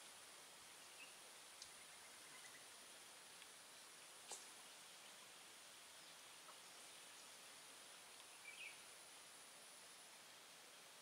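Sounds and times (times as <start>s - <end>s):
faint steady hiss: 0.0s - 11.0s
faint tick: 1.6s - 1.8s, 3.4s - 3.6s.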